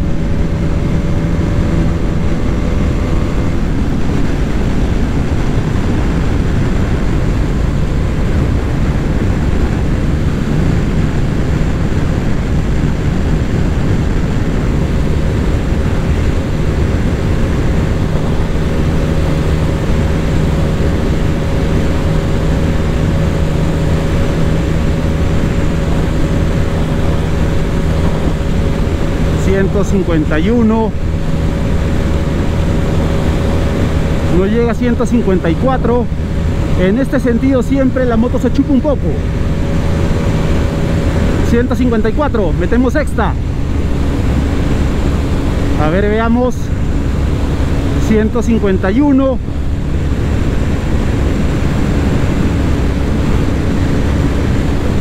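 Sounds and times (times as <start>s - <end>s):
motorcycle engine running hard: 0.0s - 55.0s
wind noise: 0.0s - 55.0s.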